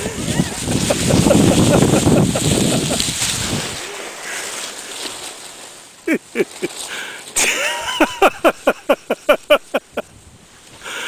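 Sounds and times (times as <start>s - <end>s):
wind buffeting microphone: 0.0s - 3.9s.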